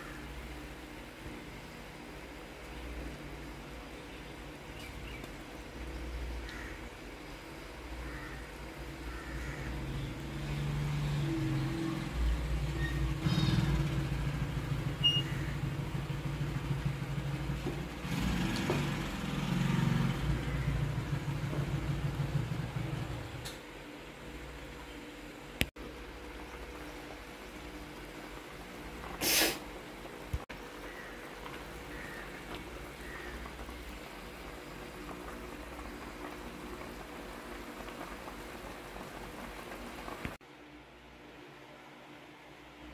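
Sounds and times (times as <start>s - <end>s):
curry simmering in a pan: 25.8s - 40.4s.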